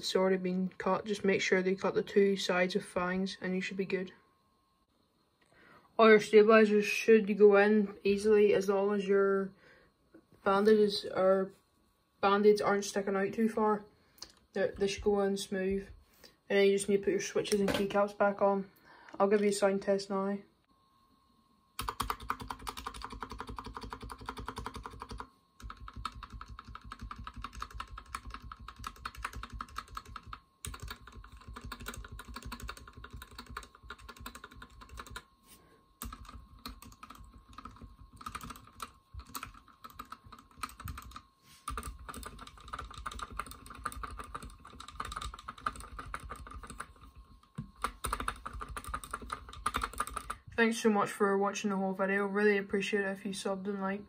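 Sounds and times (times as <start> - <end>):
mechanical keyboard typing: 21.8 - 35.3, 36.0 - 50.4.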